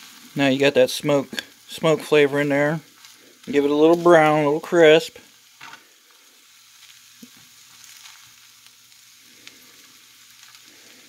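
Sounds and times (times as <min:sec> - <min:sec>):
meat sizzling in a skillet: 0:00.0 - 0:11.0.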